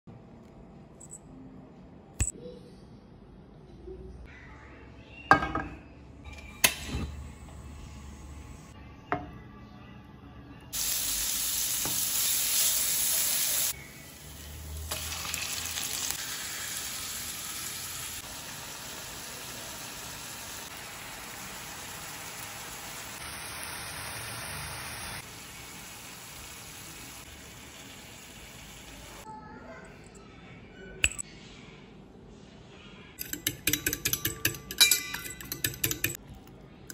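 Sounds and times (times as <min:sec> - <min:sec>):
meat sizzling in a frying pan: 0:10.8 - 0:29.2.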